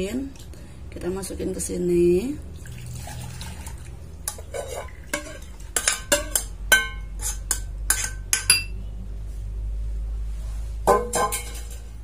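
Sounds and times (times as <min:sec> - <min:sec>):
soup pouring into bowl: 0:02.6 - 0:04.1
metal clinking on crockery: 0:10.9 - 0:12.0.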